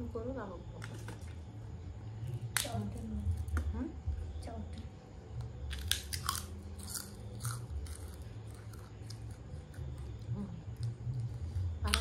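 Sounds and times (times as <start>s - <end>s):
low steady hum: 0.0s - 12.0s
crunching crispy cracker: 5.7s - 12.0s.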